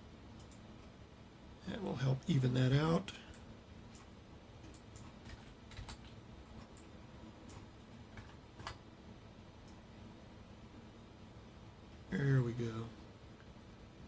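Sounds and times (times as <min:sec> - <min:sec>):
low room hum: 0:00.0 - 0:14.0
computer mouse and keyboard clicks: 0:03.3 - 0:08.8.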